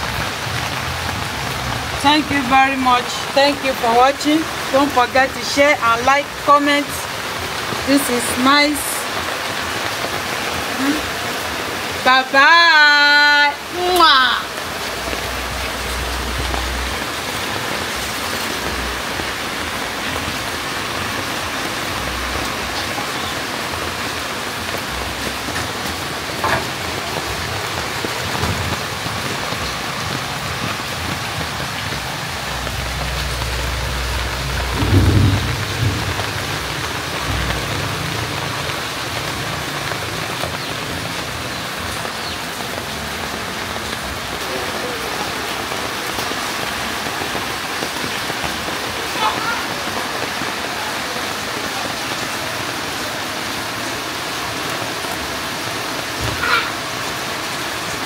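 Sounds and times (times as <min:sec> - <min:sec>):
rain hiss: 0:00.0 - 0:58.0
low rumble: 0:32.4 - 0:38.6.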